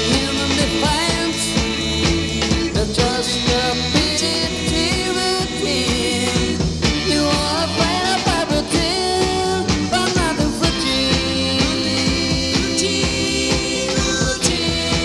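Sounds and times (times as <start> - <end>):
beat-band rock music: 0.0 - 15.0.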